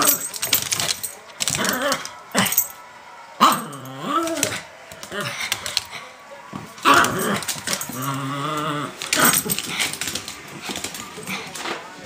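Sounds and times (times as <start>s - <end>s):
dog growling: 6.8s - 10.1s.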